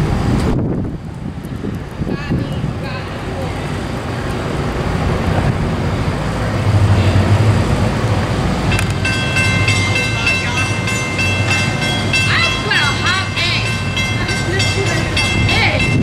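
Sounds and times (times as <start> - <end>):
diesel locomotive rumble: 0.0 - 16.0
crossing warning bell ringing: 6.6 - 16.0.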